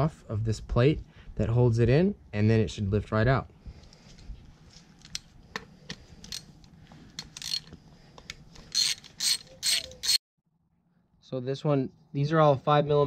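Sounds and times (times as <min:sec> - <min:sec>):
ratchet clicking: 0:07.2 - 0:07.7, 0:08.7 - 0:10.2.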